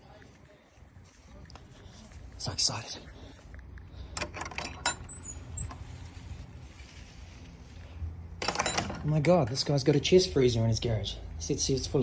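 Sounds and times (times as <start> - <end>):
wooden gate clicking and rattling: 4.1 - 5.8, 8.4 - 9.5
short high squeaks: 5.0 - 6.1.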